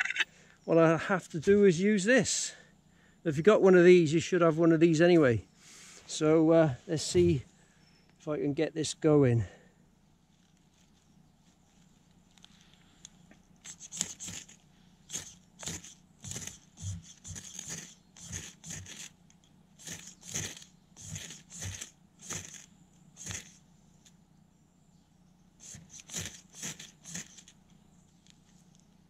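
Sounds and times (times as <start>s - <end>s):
ferro rod striker scraping: 12.4s - 23.6s, 25.6s - 28.8s.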